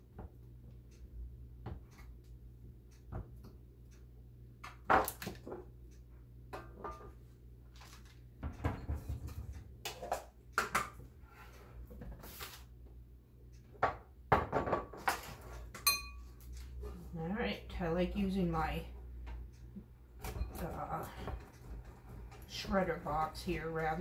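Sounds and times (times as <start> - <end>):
kitchen items clattering on countertop: 7.8 - 11.0, 13.8 - 16.0.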